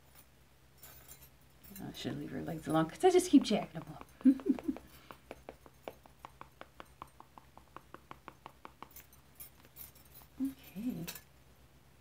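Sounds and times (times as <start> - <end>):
pastel tapping on paper: 3.3 - 9.0.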